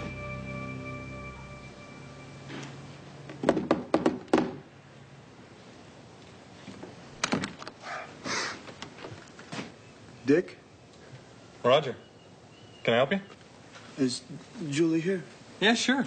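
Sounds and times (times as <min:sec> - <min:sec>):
knocking on a door: 0:03.5 - 0:04.6.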